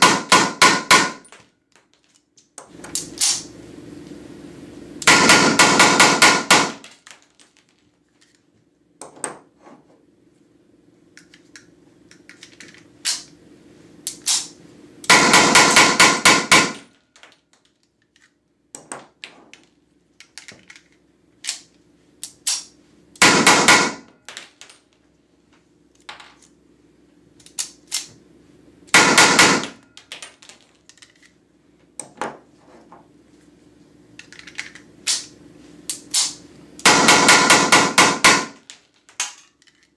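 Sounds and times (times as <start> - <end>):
blank pistol rapid firing: 0.0 - 1.2, 5.0 - 6.8, 15.1 - 16.8, 23.2 - 24.1, 29.0 - 29.8, 36.8 - 38.6
steady low hum: 2.2 - 17.2, 17.8 - 39.9.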